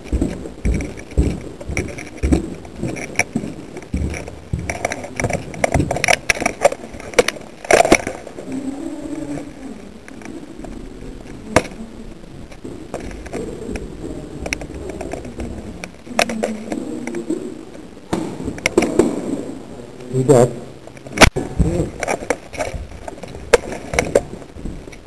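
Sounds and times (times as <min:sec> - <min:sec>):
sharp clicks and knocks: 0:00.0 - 0:08.4, 0:21.0 - 0:25.0
faint low background noise: 0:00.0 - 0:25.0.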